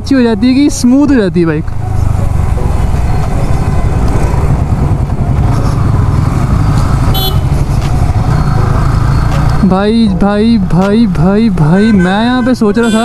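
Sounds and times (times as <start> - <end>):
motorcycle engine running: 1.7 - 10.6
wind rumble: 1.7 - 11.6
horn toot: 7.1 - 7.6, 11.8 - 13.0.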